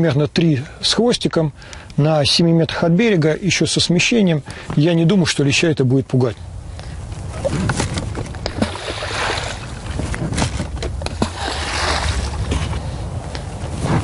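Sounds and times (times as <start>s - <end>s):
bait balls splashing in river: 8.4s - 9.9s, 11.0s - 12.5s.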